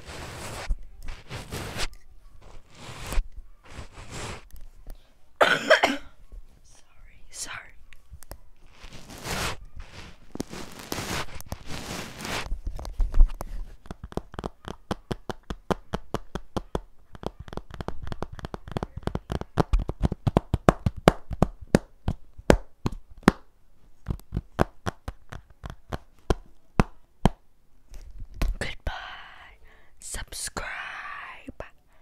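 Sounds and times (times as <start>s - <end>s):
fingers tapping on hard object: 13.8s - 27.4s.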